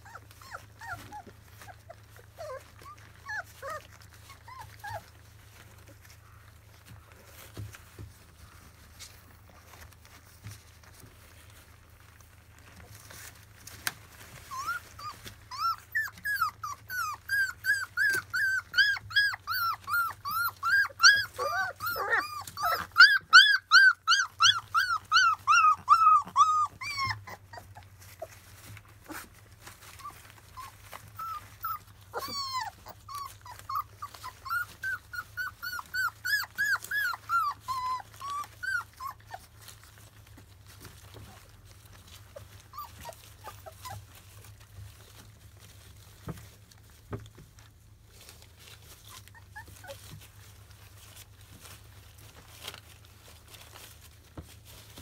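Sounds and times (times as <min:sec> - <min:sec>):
puppies whimpering in high squeaks: 0:00.0 - 0:06.2, 0:14.0 - 0:46.8, 0:48.6 - 0:51.7
lower puppy calls: 0:14.0 - 0:40.1.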